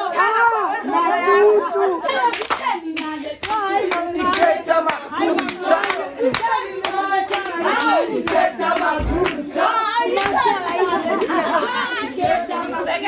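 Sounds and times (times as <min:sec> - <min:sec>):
women singing together: 0:00.0 - 0:13.0
hand clapping in steady beat: 0:02.2 - 0:11.4.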